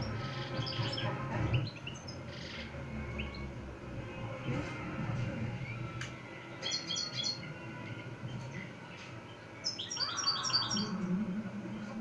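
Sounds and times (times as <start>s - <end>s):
goldfinch twittering song: 6.6s - 7.5s, 9.6s - 11.0s.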